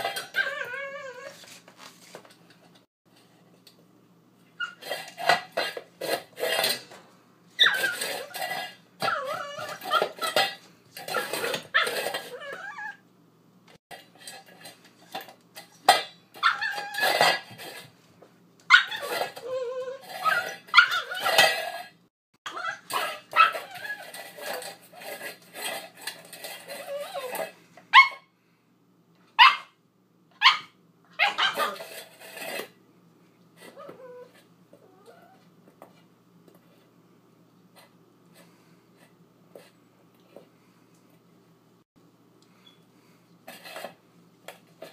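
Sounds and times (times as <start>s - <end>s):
metal dish clattering on tile: 0.0s - 0.6s, 4.8s - 7.0s, 7.7s - 12.4s, 14.0s - 17.9s, 18.9s - 21.9s
puppy barking and growling: 0.0s - 1.4s, 7.6s - 10.5s, 16.4s - 17.4s, 18.7s - 21.6s, 22.5s - 24.5s, 26.8s - 28.2s, 29.4s - 29.8s, 30.4s - 32.0s
puppy yipping: 7.6s - 8.1s, 16.4s - 17.2s, 18.7s - 21.4s, 28.0s - 28.2s, 29.4s - 29.7s, 30.4s - 31.8s.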